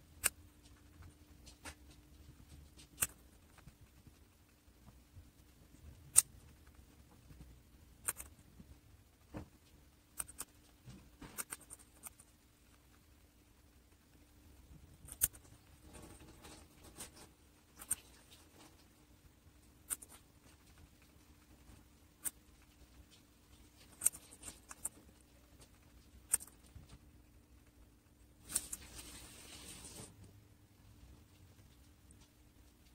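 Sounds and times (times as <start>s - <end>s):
guinea pig crunching vegetables: 0.0s - 30.0s
pet nibbling clicks: 0.2s - 5.0s, 5.7s - 8.4s, 9.6s - 14.3s, 14.9s - 18.9s, 19.8s - 28.7s.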